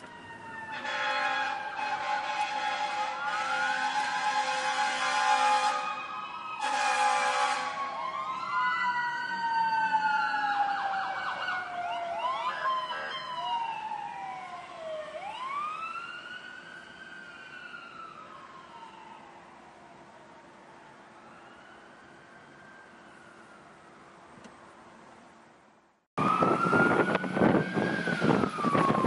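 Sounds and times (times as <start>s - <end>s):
ambulance siren wailing and yelping: 0.0s - 23.6s, 26.2s - 29.0s
ambulance horn blast: 0.6s - 8.0s.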